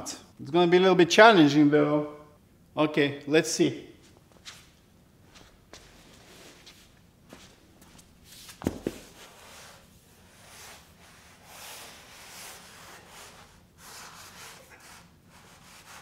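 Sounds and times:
rubber mat rustling and scraping: 0:04.0 - 0:16.0.

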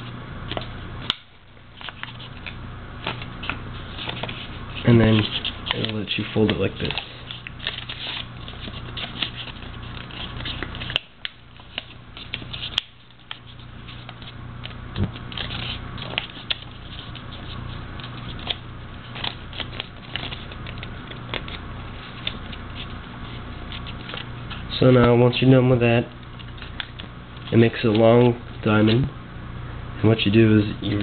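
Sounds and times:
paper rustling and crinkling: 0:01.8 - 0:14.4, 0:15.0 - 0:25.1
sharp paper ticks: 0:01.8 - 0:25.1, 0:26.2 - 0:28.1.

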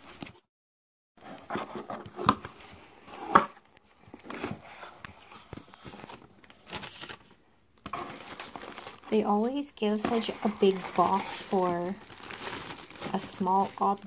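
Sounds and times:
cardboard rubbing and scraping: 0:10.0 - 0:12.8.

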